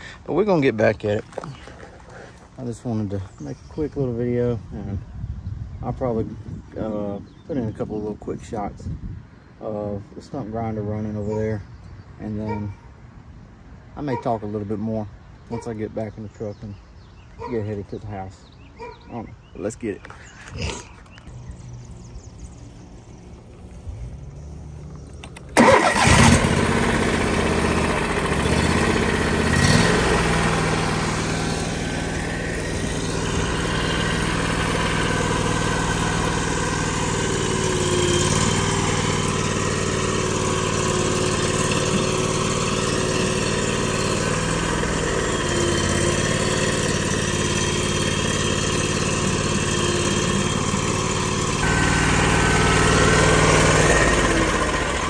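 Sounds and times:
stump grinder engine running: 24.8 - 55.0.

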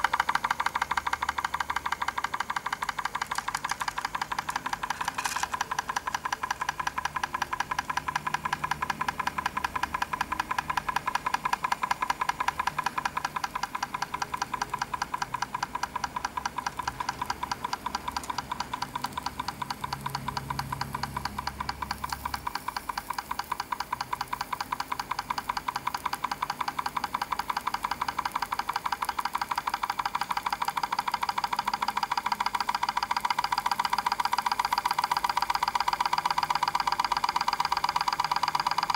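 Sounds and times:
model engine ticking clatter: 0.0 - 38.9.

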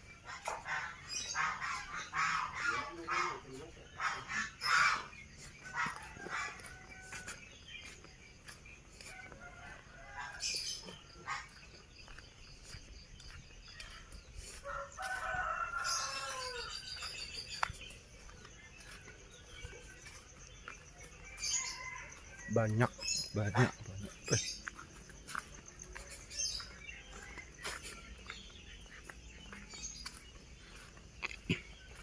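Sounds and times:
rooster crowing: 14.6 - 17.0.

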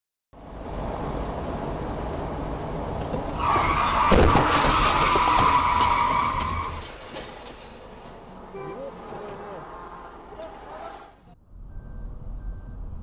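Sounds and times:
car road noise: 0.4 - 13.0
tyre squeal of hard braking: 3.3 - 7.8, 10.4 - 11.3
motorcycle crash knocks and scraping: 3.6 - 8.2.

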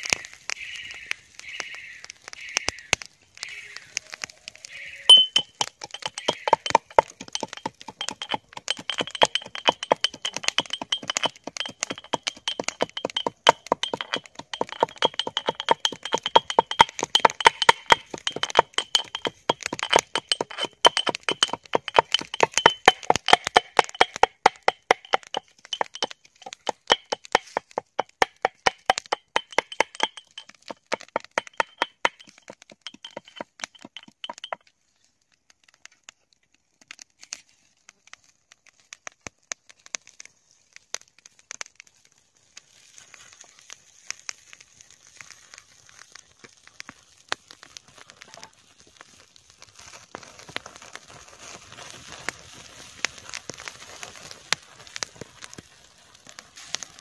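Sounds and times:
rapid sharp knocks and cracks: 5.3 - 34.6.

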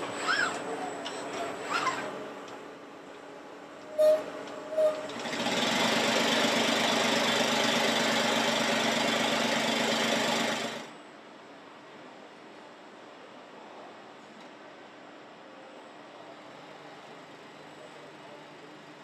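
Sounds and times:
brief tones: 3.9 - 5.1.

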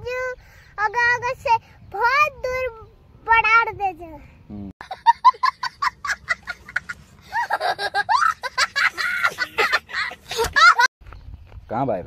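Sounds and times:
child laughing: 4.8 - 10.9.

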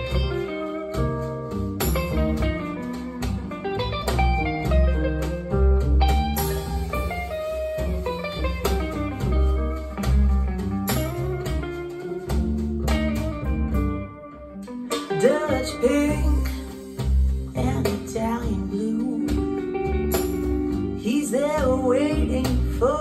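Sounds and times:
guitar-led instrumental music: 0.0 - 23.0.

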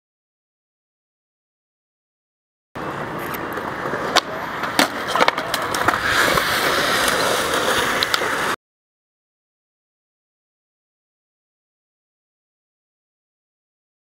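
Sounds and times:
skateboard clacks: 2.8 - 8.6
skateboard wheels rolling on concrete: 2.8 - 8.6.

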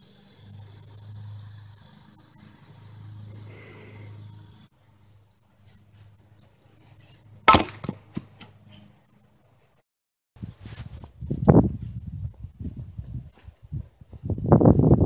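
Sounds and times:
axe chopping wood: 7.5 - 8.5.

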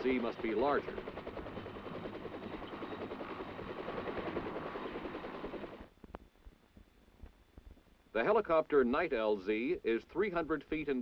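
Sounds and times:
helicopter rotor chopping: 0.0 - 5.9.

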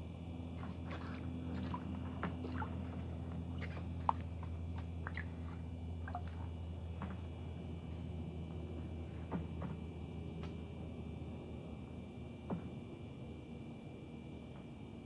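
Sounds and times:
steady low hum: 0.0 - 15.0
fish splashing in water: 0.6 - 6.6.

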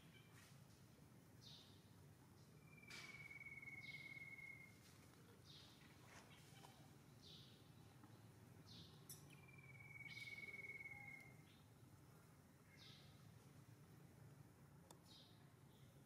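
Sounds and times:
short high bird calls: 2.6 - 4.8, 9.3 - 11.5.

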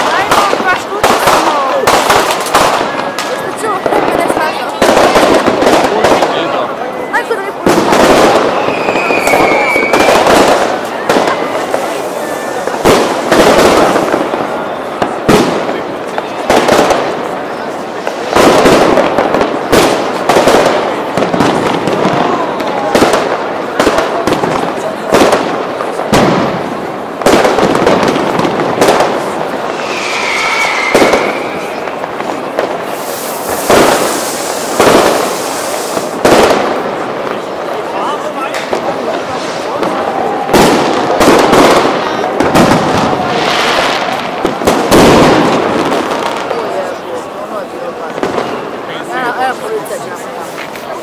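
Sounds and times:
fireworks bangs: 0.0 - 51.0
fireworks crackling: 0.0 - 51.0.

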